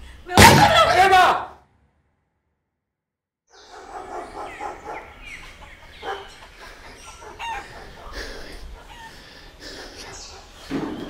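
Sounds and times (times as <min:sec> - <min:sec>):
chickens clucking: 0:03.6 - 0:11.0.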